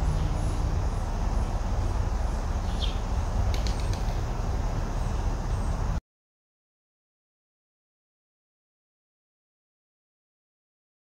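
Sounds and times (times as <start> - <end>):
outdoor background rumble: 0.0 - 6.0.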